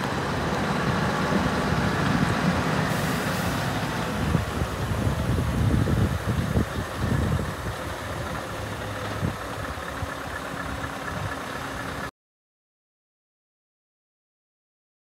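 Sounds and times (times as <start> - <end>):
truck diesel engine idling: 0.0 - 12.1.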